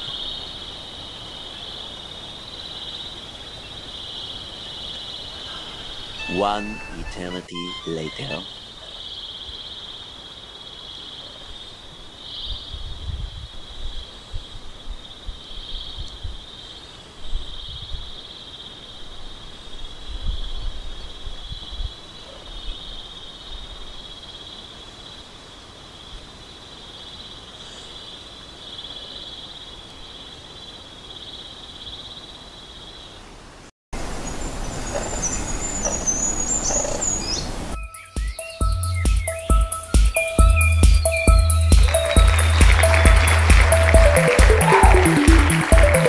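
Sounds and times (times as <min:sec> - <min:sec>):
wind buffeting microphone: 0:12.6 - 0:14.0
bird reeling trill: 0:35.8 - 0:43.0.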